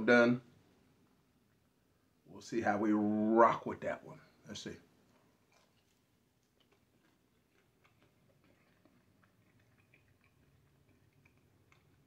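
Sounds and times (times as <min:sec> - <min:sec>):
person chewing crisp bacon: 0:05.4 - 0:12.0.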